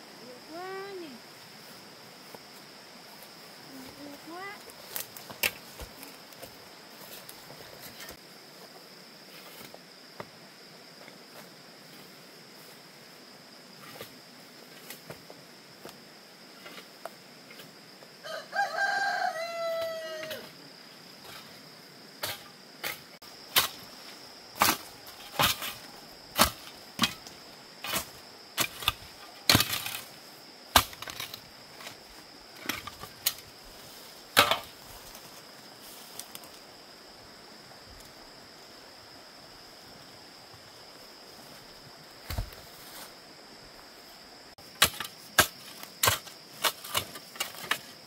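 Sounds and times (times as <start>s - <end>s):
high insect drone: 0.0s - 48.0s
rooster crowing: 18.2s - 20.5s.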